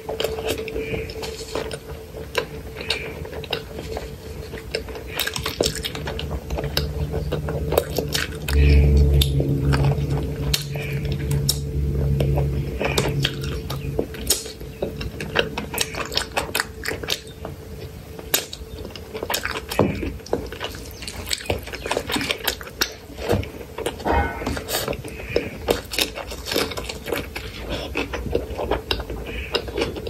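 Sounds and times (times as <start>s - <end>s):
wet chewing and lip-smacking: 0.0s - 8.6s, 14.3s - 24.0s, 24.6s - 30.0s
low hum: 0.0s - 25.5s.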